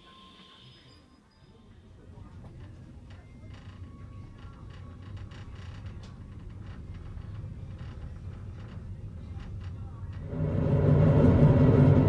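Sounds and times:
low rumble of rolling coach: 0:00.0 - 0:12.0
creaking and clicking fittings: 0:02.4 - 0:10.3.

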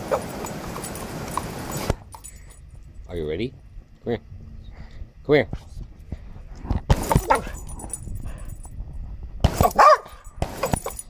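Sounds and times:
dog barking: 0:00.0 - 0:00.5, 0:07.2 - 0:07.6, 0:09.5 - 0:11.0.

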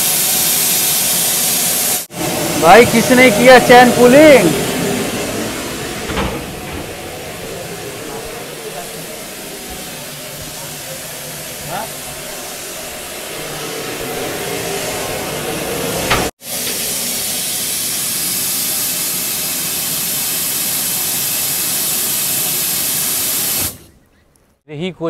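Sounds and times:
compressed air hissing from valve: 0:16.4 - 0:23.9.

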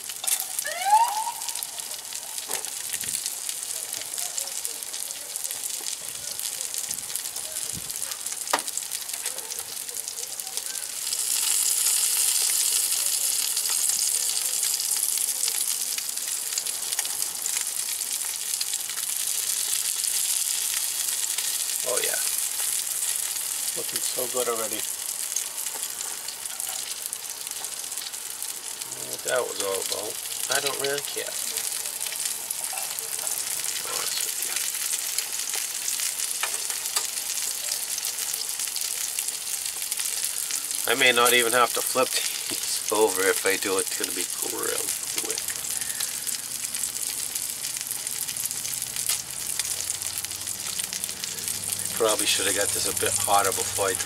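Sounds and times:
fish fillets sizzling in a skillet: 0:00.0 - 0:54.0.

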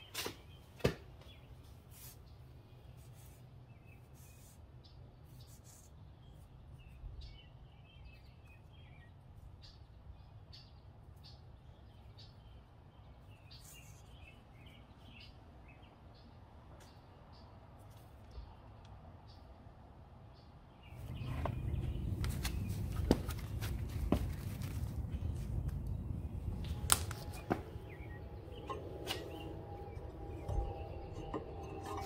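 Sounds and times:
steady low rumble: 0:20.9 - 0:32.0.

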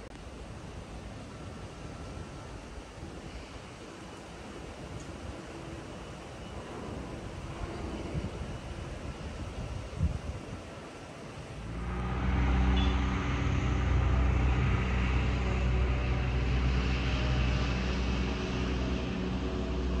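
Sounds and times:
engine drone: 0:11.4 - 0:20.0.

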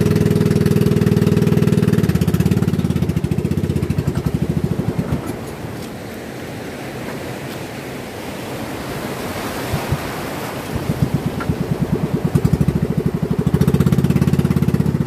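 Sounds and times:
boat engine putting: 0:00.0 - 0:15.0
breaking surf and churning water: 0:00.0 - 0:15.0.

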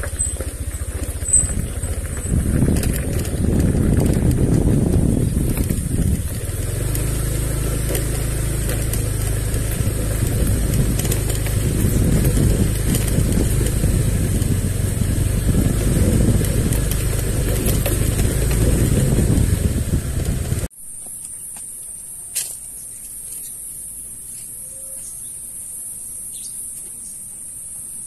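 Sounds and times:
motorcycle engine running: 0:00.0 - 0:20.7.

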